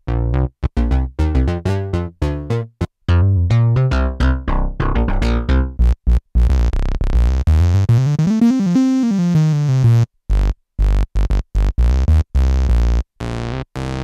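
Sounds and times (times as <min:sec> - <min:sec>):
synthesizer notes: 0:00.8 - 0:10.1.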